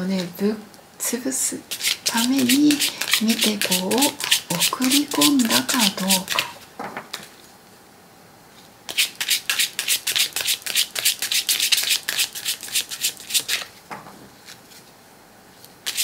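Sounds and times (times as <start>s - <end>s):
cards being shuffled: 1.7s - 7.4s, 8.9s - 13.7s.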